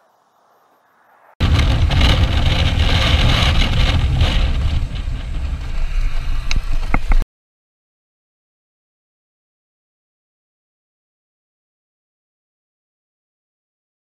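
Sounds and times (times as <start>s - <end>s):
wind rumble on microphone: 1.4s - 7.2s.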